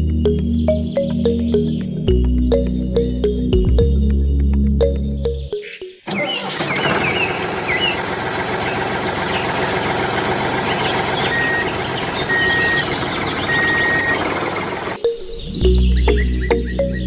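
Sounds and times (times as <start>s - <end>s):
diesel tractor engine running: 6.0s - 17.0s
high reversing alarm beeps: 11.3s - 15.8s.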